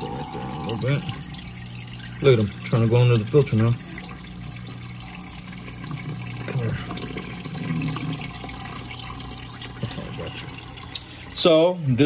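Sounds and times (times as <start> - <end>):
tank filter humming: 0.0 - 12.0
water sloshing and trickling: 0.0 - 12.0.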